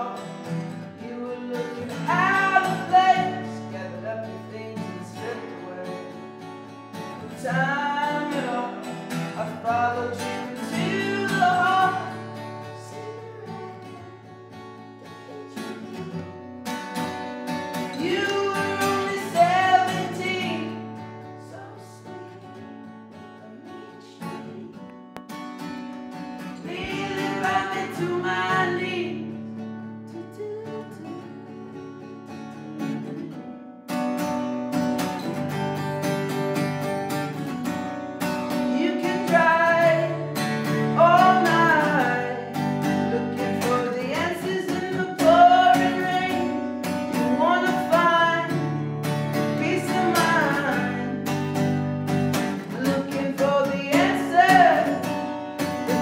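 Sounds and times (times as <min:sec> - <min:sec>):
man singing: 0:00.0 - 0:06.2, 0:07.2 - 0:14.3, 0:17.8 - 0:24.9, 0:26.6 - 0:29.5, 0:30.1 - 0:31.7, 0:38.5 - 0:51.4, 0:52.3 - 0:56.0
strummed acoustic guitar: 0:00.0 - 0:56.0.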